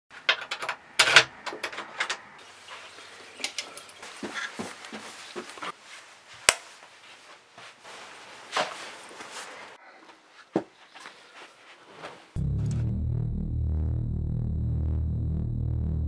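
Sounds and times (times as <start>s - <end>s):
clothing rustling: 3.9s - 9.8s, 10.4s - 12.4s
loud music with bass guitar: 12.4s - 16.0s.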